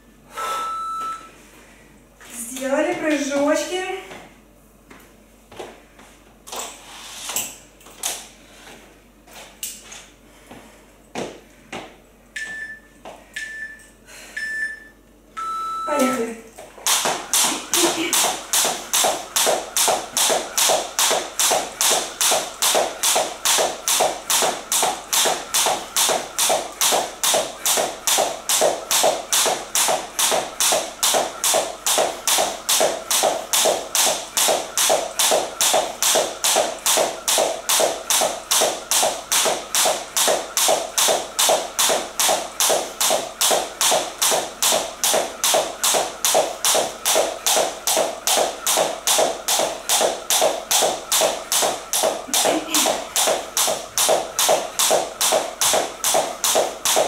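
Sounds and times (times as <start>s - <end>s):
jump rope tapping wooden floor: 16.8s - 57.0s.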